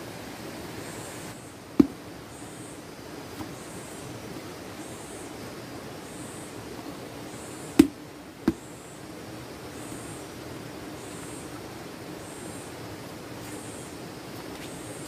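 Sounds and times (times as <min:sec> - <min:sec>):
steady background hiss: 0:00.0 - 0:15.0
sharp knocks: 0:07.8 - 0:08.6.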